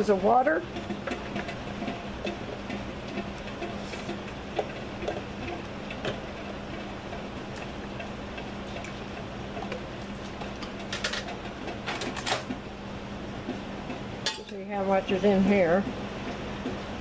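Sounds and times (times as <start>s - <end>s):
steady low hum: 0.0s - 17.0s
faint clicks and taps: 13.4s - 14.0s, 15.8s - 16.9s.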